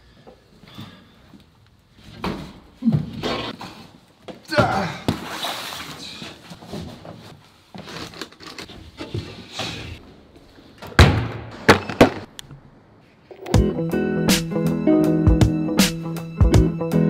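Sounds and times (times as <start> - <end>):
shuffling and rustling: 5.2 - 10.7.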